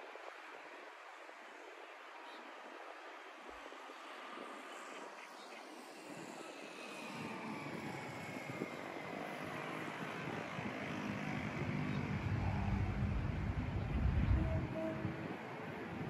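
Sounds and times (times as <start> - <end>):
diesel train engine rumble: 11.8 - 15.1.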